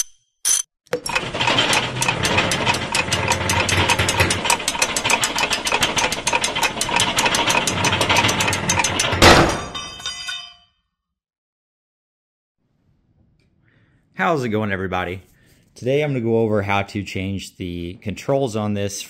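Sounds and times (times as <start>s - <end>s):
gears ratcheting clicks: 0.5s - 9.1s
low mechanical rumble: 1.1s - 9.1s.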